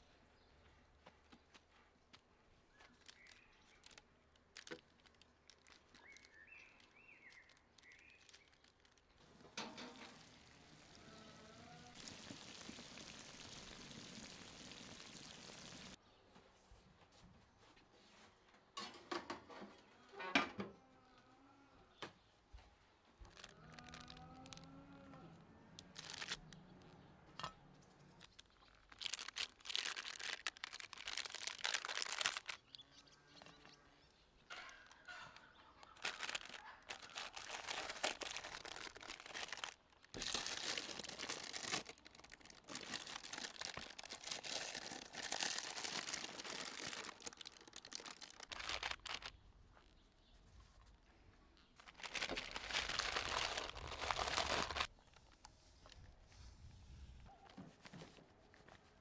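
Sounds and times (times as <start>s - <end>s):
rustling and crinkling handling noise: 0.6s - 11.2s, 22.5s - 27.1s, 27.9s - 32.9s, 34.5s - 59.0s.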